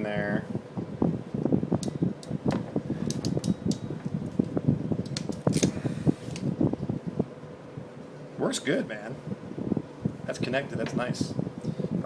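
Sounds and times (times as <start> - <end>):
rustle of hands and wires: 1.3 - 6.8.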